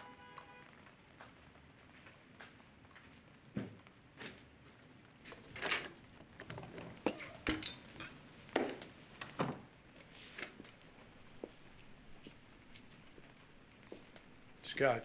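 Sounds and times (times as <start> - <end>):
glasses and utensils clinking: 7.0 - 8.2.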